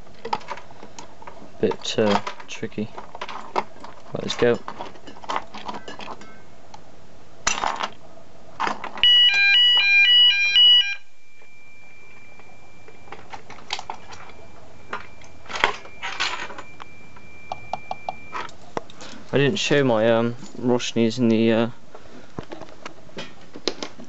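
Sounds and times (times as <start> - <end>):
two-tone fire alarm: 9.0 - 18.5
thin steady high tone: 10.2 - 18.5.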